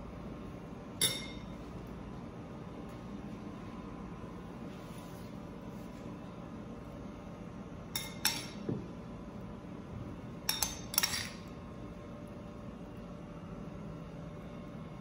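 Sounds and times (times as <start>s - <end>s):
low background hum: 0.0s - 15.0s
metal spoon clinking on dish: 1.0s - 1.5s, 7.9s - 8.6s, 10.5s - 11.5s.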